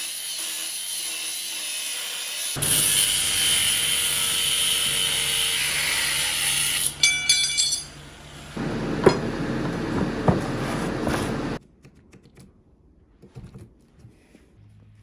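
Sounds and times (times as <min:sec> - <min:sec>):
angle grinder cutting steel: 0:00.0 - 0:08.5
metal clinks rattling: 0:07.0 - 0:07.9
sharp metal knocks: 0:07.0 - 0:08.0.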